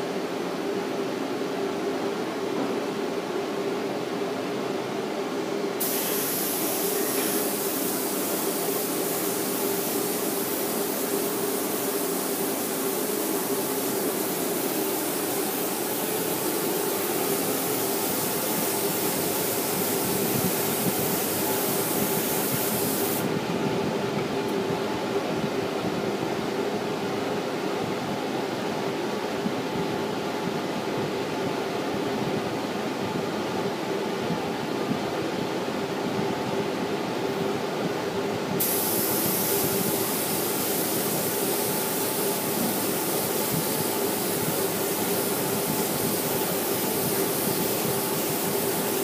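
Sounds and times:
steady machine hum: 0.0s - 49.0s
spray gun hissing: 5.8s - 23.3s, 38.6s - 49.0s.

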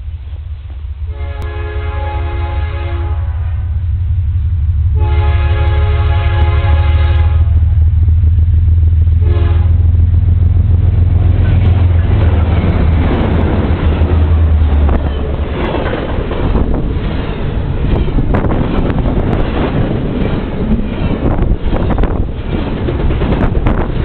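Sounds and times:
diesel locomotive engine rumble: 0.0s - 24.0s
rail cars rattling and clattering: 0.0s - 24.0s
train horn toot: 1.1s - 3.9s, 4.9s - 7.8s, 9.2s - 10.0s.

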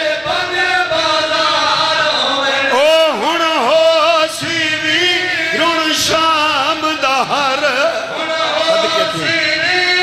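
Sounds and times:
man chanting a mournful lament: 2.6s - 10.0s.

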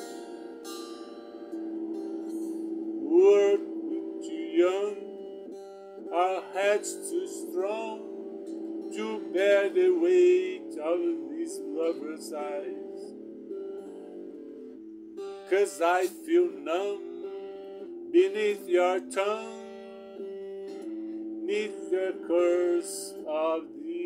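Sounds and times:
electric guitar chords: 0.0s - 24.0s
man singing: 3.0s - 5.2s, 6.1s - 13.1s, 15.5s - 17.3s, 18.2s - 19.8s, 21.4s - 24.0s.

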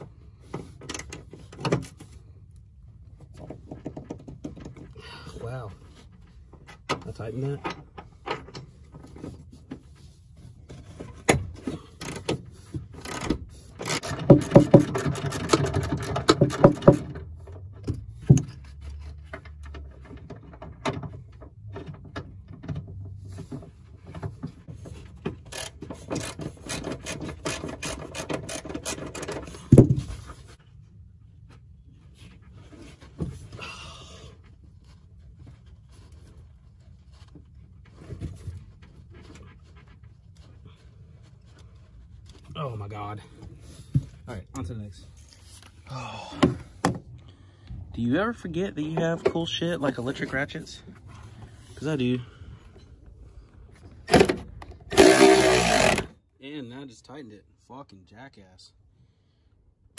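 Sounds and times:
ratchet wrench clicking: 13.0s - 17.0s, 25.5s - 29.5s, 54.9s - 56.1s.

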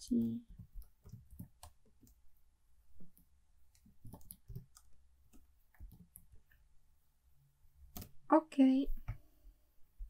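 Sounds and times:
keyboard keys typing: 0.1s - 2.2s, 3.0s - 6.4s.

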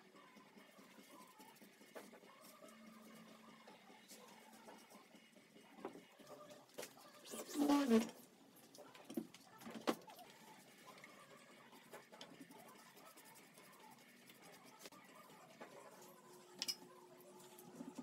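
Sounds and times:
paintbrush scratching on wood: 11.8s - 15.0s.

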